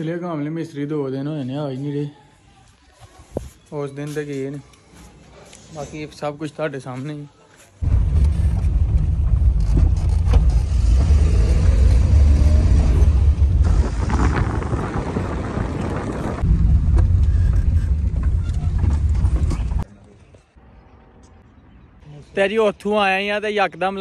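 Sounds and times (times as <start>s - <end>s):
car engine and road rumble: 7.8s - 19.9s.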